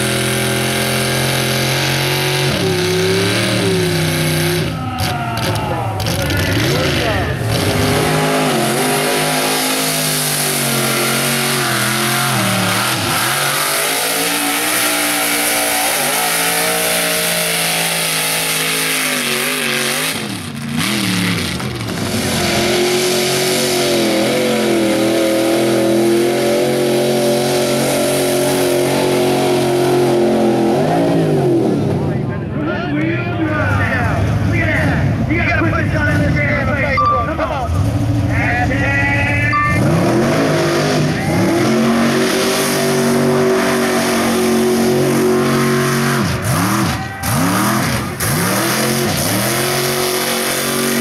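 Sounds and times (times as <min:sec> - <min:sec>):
truck engines revving: 0:00.0 - 0:51.0.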